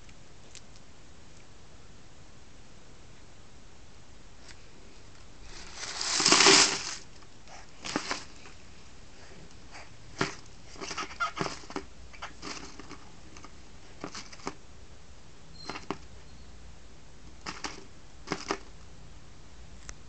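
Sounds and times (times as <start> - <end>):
paper rustling and crinkling: 5.4 - 8.6, 10.2 - 14.6.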